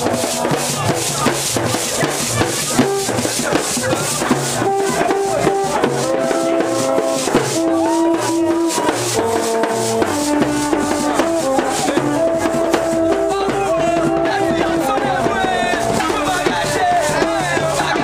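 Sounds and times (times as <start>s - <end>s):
rattling shaker: 0.0s - 13.4s
drum strokes: 0.0s - 18.0s
trumpets playing short held notes: 4.6s - 16.2s.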